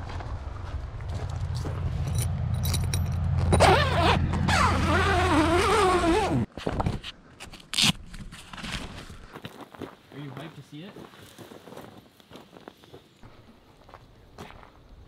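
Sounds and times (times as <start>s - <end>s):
low rumble: 0.0s - 6.1s
zipper being pulled open: 3.4s - 6.5s.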